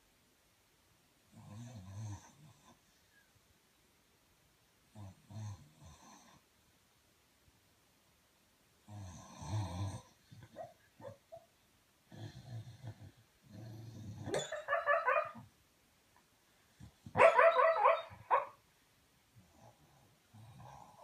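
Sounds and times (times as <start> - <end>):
dog snoring: 1.3 - 2.8, 4.9 - 6.4, 8.8 - 10.6, 12.1 - 14.4, 19.4 - 21.0
dog yipping in sleep: 14.3 - 15.4, 17.2 - 18.6.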